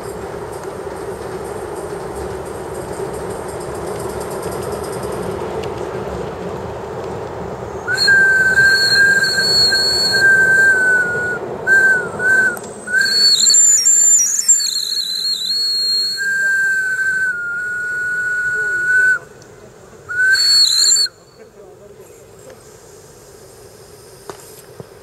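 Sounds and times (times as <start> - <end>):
model steam locomotive running: 0.0 - 25.0
steam whistle blowing: 7.9 - 19.2, 20.1 - 21.2.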